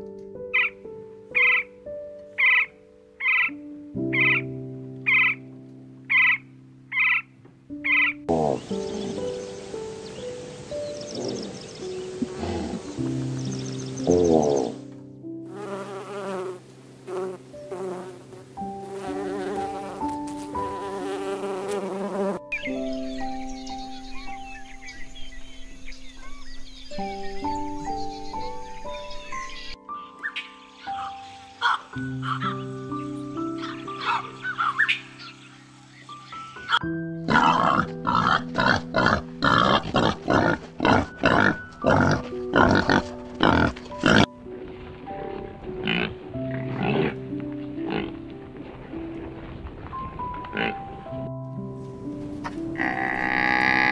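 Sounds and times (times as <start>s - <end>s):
soft sustained piano notes: 0.0s - 53.9s
wild boar grunting: 8.3s - 9.4s, 11.1s - 13.0s, 14.0s - 14.8s, 37.2s - 44.3s, 45.4s - 47.3s, 52.8s - 53.9s
honeybee buzzing: 15.5s - 22.6s.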